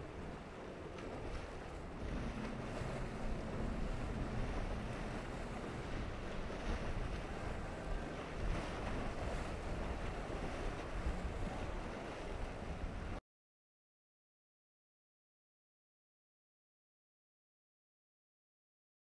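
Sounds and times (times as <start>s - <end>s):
ocean surf breaking: 0.0s - 13.2s
wind buffeting microphone: 0.0s - 13.2s.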